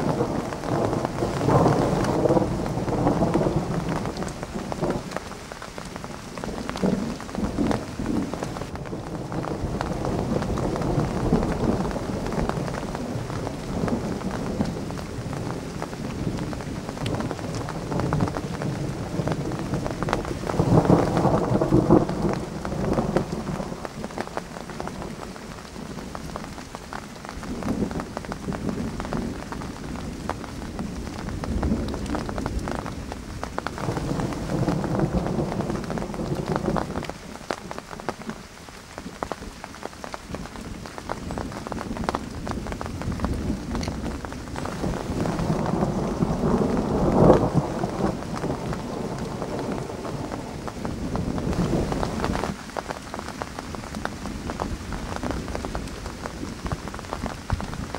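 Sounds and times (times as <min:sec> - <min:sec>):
rolling thunder: 0:00.0 - 0:26.4, 0:33.7 - 0:37.2, 0:41.4 - 0:53.1
raindrops ticking: 0:00.0 - 0:57.9
steady rain: 0:00.0 - 0:57.9.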